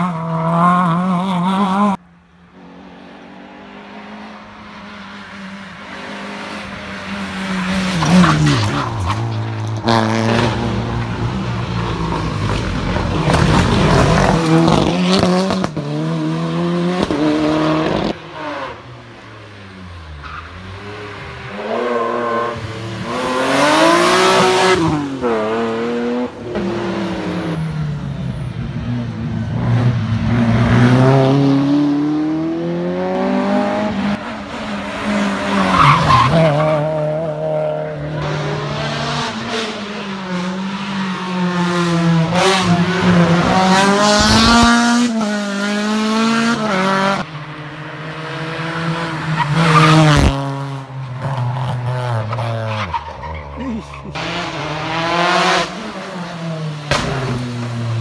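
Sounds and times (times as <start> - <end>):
rally cars revving past: 0.0 - 58.0.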